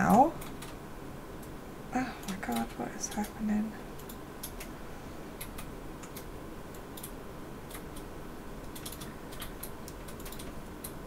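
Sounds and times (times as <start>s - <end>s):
low room hum: 0.0s - 11.0s
light clicks and ticks: 2.2s - 3.4s, 5.4s - 11.0s.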